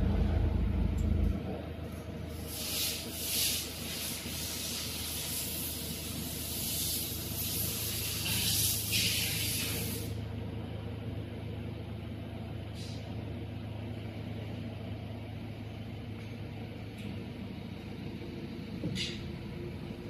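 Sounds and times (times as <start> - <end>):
low steady hum: 0.0 - 2.7, 10.1 - 20.0
high hissing noise: 2.4 - 10.2.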